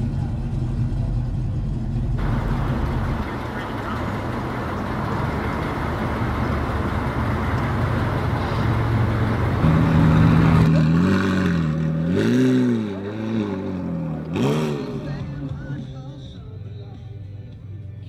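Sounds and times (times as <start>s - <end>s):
car driving past: 2.2s - 15.8s
background music: 14.4s - 18.0s.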